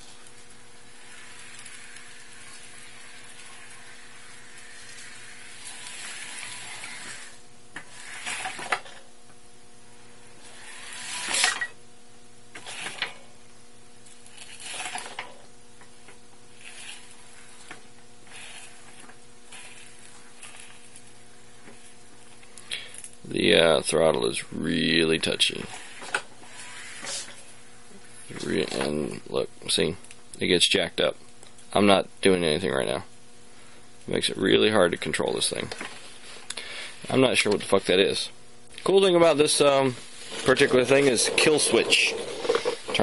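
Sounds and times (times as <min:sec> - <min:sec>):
electric wheelchair motors: 0:00.0 - 0:09.1, 0:10.0 - 0:11.8, 0:12.5 - 0:13.4, 0:14.0 - 0:23.1, 0:25.0 - 0:27.7, 0:38.9 - 0:43.0
steady hum: 0:00.0 - 0:43.0.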